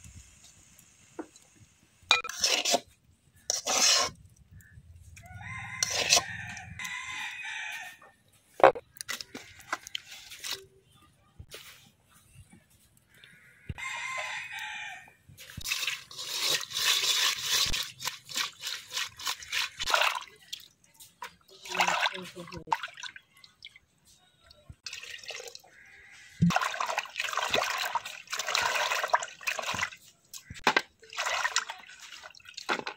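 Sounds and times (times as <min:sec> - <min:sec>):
rooster crowing: 0:05.2 - 0:08.0, 0:13.8 - 0:15.2
splashing: 0:15.4 - 0:23.8, 0:24.8 - 0:32.9.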